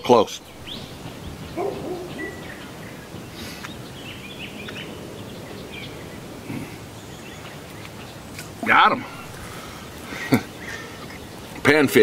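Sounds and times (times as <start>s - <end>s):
outdoor background noise: 0.0s - 12.0s
faint bird chirps: 0.4s - 8.2s.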